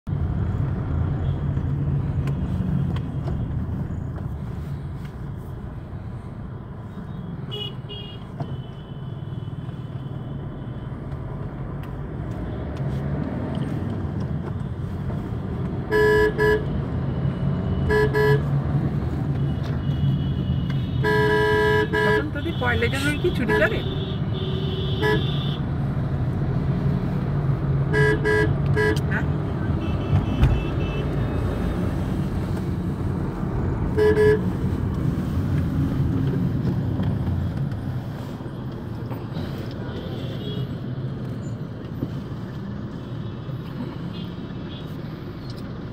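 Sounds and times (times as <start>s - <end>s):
car road and engine rumble: 0.0s - 45.9s
car horns honking: 15.8s - 16.8s, 17.6s - 18.6s, 19.4s - 25.6s, 27.8s - 31.5s, 33.9s - 34.7s.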